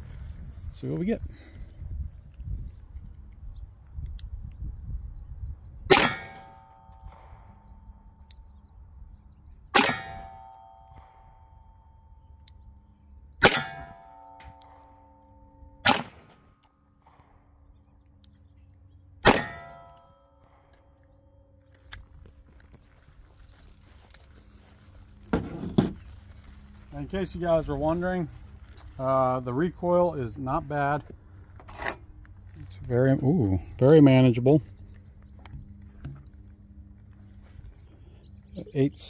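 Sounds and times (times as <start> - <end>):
revolver shots: 15.8 - 16.4.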